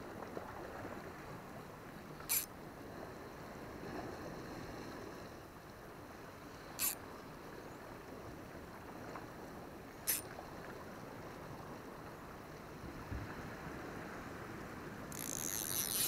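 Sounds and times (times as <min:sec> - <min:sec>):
sharp hissing clicks: 0:02.2 - 0:02.5, 0:15.1 - 0:16.0.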